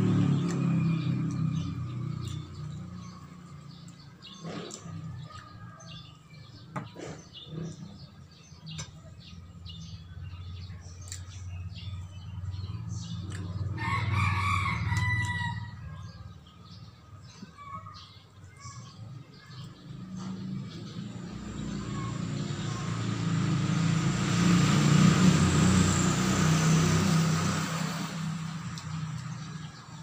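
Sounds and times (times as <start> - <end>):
rooster crowing: 13.8 - 16.0.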